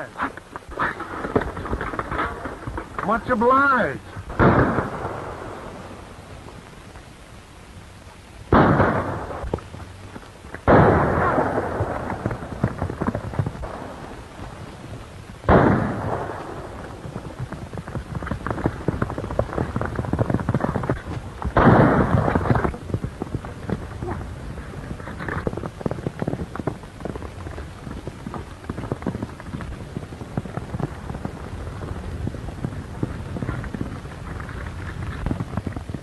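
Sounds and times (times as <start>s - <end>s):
loud gunshots: 4.3s - 5.8s, 8.5s - 9.4s, 10.7s - 12.8s, 15.4s - 16.8s, 21.5s - 22.6s.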